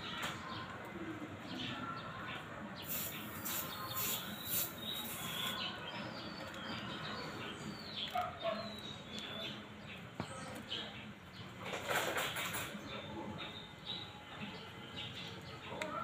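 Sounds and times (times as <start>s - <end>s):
aerosol can hissing: 2.8s - 5.6s
faint bird chirps: 2.8s - 9.6s.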